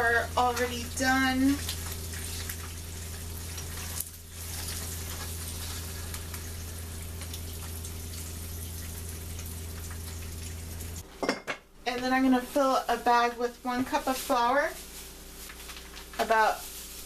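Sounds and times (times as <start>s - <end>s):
eggs sizzling in a skillet: 0.0s - 11.1s.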